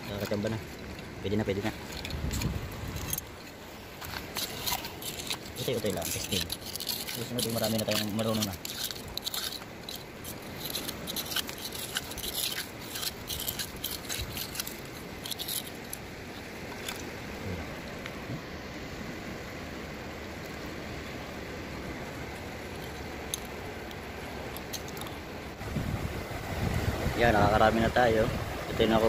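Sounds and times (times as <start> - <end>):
wind: 0.0 - 29.0
hand digging through shells and gravel: 0.1 - 17.2
surf: 16.3 - 29.0.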